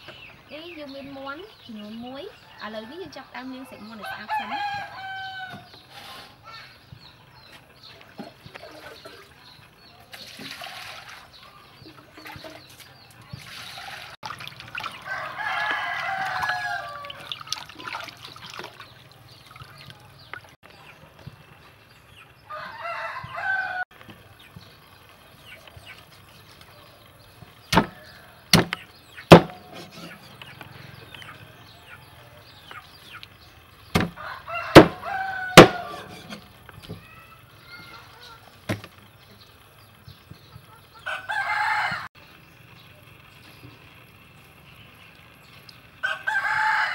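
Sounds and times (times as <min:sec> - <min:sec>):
rooster crowing: 0:04.0 - 0:05.7, 0:15.0 - 0:17.3, 0:22.5 - 0:23.9, 0:34.2 - 0:36.4, 0:41.0 - 0:42.1, 0:46.0 - 0:46.9
water splashing in steel bowl: 0:10.1 - 0:20.6
cleaver chopping on wooden board: 0:27.7 - 0:30.0, 0:34.0 - 0:35.0, 0:35.6 - 0:36.4.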